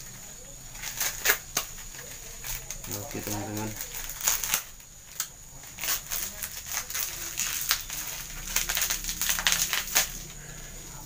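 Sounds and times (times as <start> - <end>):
plastic packaging crinkling: 0.0 - 11.0.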